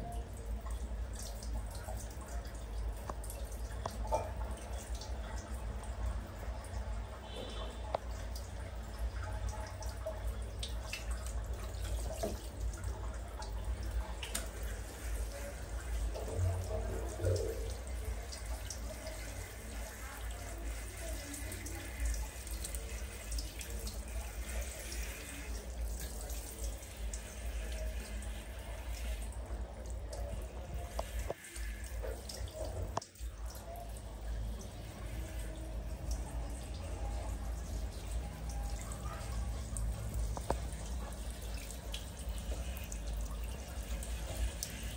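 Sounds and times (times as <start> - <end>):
water splashing on tiled floor: 6.6 - 44.9
shower head spraying water: 17.3 - 29.3, 30.8 - 32.9.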